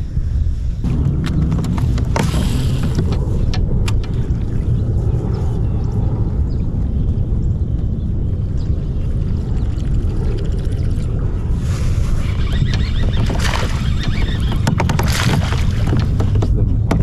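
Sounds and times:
wind buffeting microphone: 0.0 - 17.0
water lapping against hull: 0.8 - 5.8, 8.8 - 17.0
short splashes: 12.8 - 16.4.

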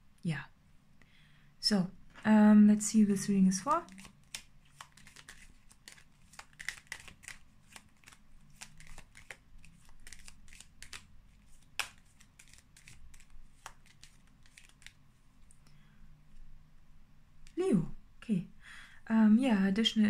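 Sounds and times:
cards shuffling: 3.7 - 15.0.

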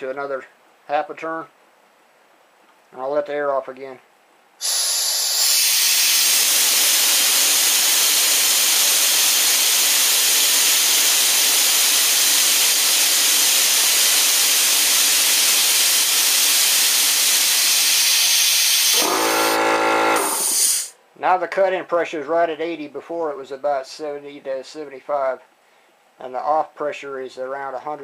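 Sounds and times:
compressed air hissing: 4.6 - 21.0.

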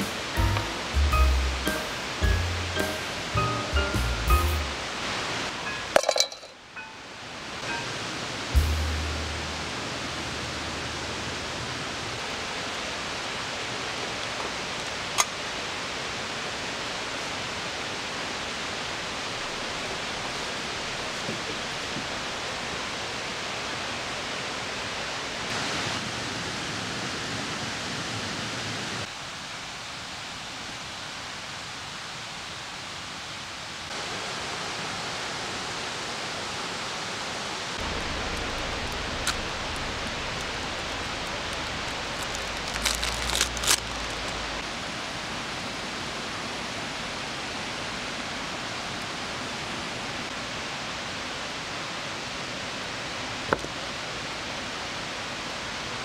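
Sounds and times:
outdoor night ambience hiss: 0.0 - 56.0
clicks and rustles of handling: 41.5 - 44.4.

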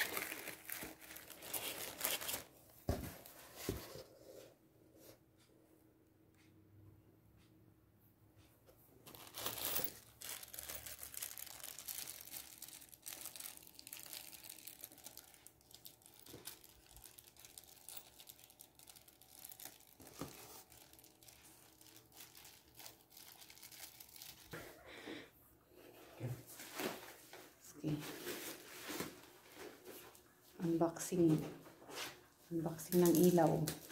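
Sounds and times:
plastic wrapping crinkling: 0.0 - 3.0, 9.1 - 24.7, 32.7 - 33.9.

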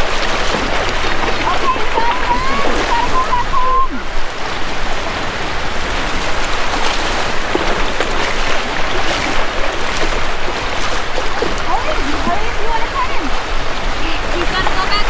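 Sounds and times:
shark splashing in water: 0.0 - 3.9, 5.8 - 12.5
surf washing on beach: 0.0 - 15.0.

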